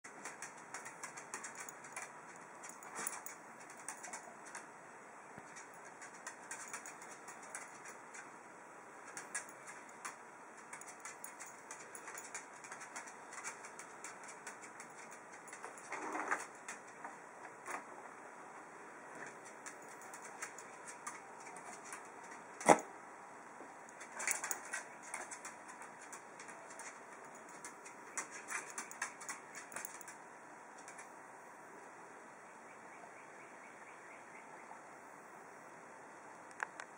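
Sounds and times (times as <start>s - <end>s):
dog claws clicking on desk: 0.1s - 4.6s, 5.5s - 8.2s, 24.1s - 30.2s.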